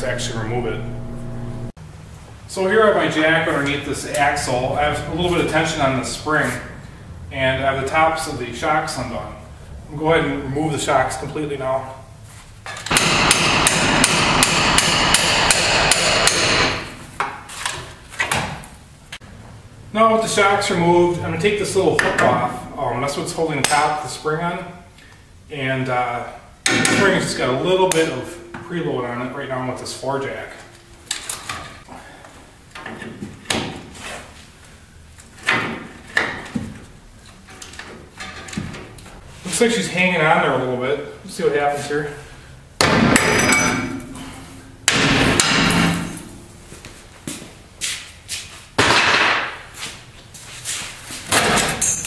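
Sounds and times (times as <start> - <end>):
hammer beating on metal: 12.9 - 16.9, 42.8 - 46.4.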